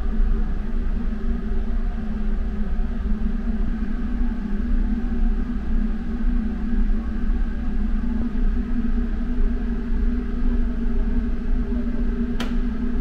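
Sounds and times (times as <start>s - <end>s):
short click: 12.4s - 12.6s.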